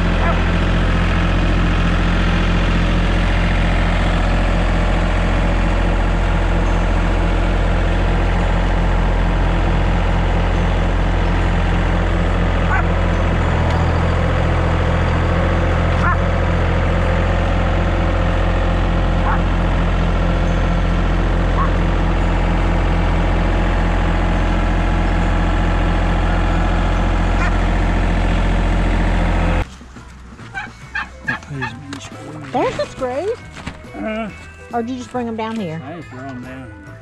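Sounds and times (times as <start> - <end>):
engine idling: 0.0 - 37.0.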